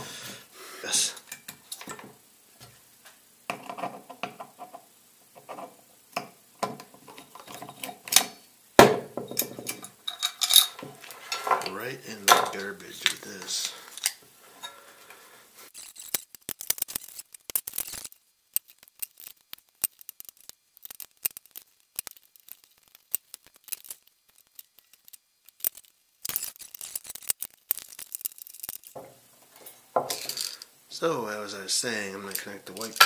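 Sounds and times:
tools and parts clicking on workbench: 1.2 - 2.2, 3.5 - 4.8, 5.4 - 8.4, 9.2 - 14.8, 15.8 - 30.7, 32.3 - 33.0.

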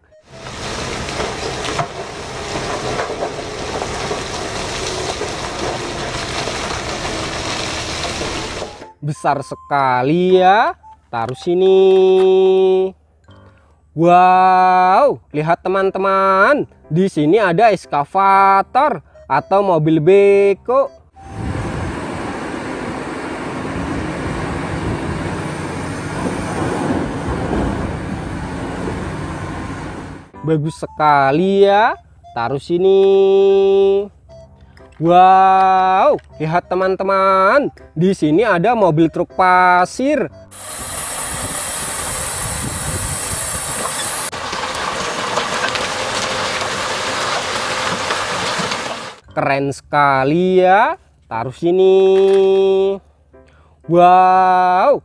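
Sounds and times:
truck engine running: 0.0 - 8.9, 21.1 - 30.4, 40.3 - 49.2
rock pouring from truck bed: 0.3 - 8.8, 40.6 - 49.2.

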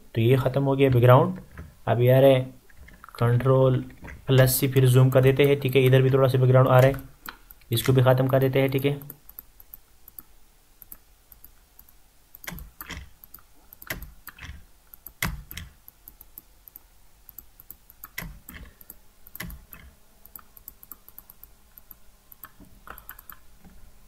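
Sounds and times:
faint ticking: 2.6 - 23.8
computer mouse clicking: 5.2 - 23.4.

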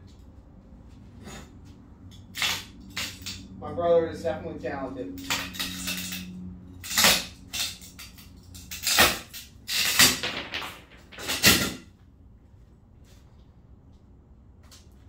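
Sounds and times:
objects knocked and scraped: 5.2 - 11.8.

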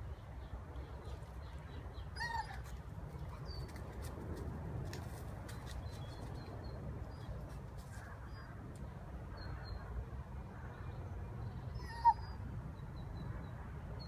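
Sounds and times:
dog whining: 11.8 - 12.4.

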